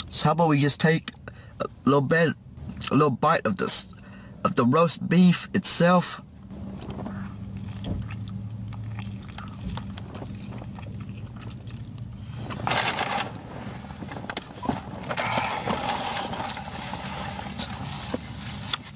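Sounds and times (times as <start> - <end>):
car engine idling: 6.3 - 18.9
person chewing food: 6.7 - 12.3
paper packaging rustling: 12.5 - 18.9.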